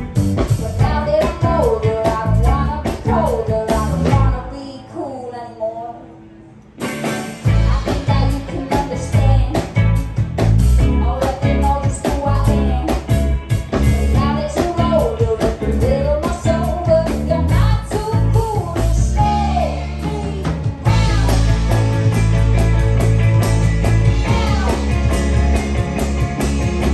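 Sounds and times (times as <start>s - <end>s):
live rock band playing: 0.0s - 4.7s, 6.6s - 26.9s
person singing: 0.5s - 6.1s, 7.5s - 9.8s, 14.1s - 21.9s, 24.1s - 25.3s.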